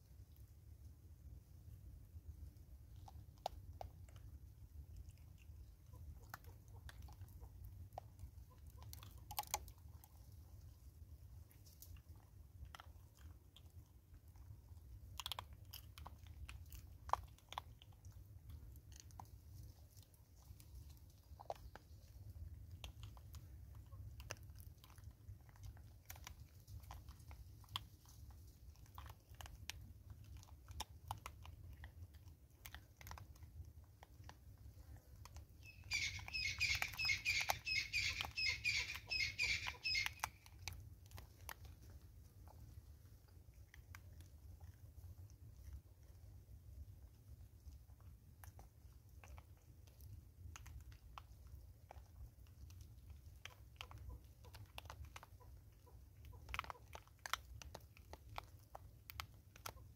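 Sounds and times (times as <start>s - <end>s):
monkeys chewing seeds: 2.2s - 59.9s
small clicks and crackles: 2.4s - 59.9s
monkey high-pitched calls: 35.7s - 40.3s.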